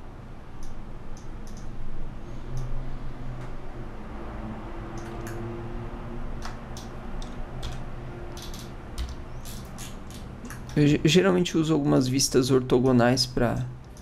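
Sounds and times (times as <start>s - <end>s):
low steady hum: 0.0s - 14.0s
computer mouse clicks: 0.6s - 1.7s, 4.9s - 5.4s, 6.4s - 10.8s.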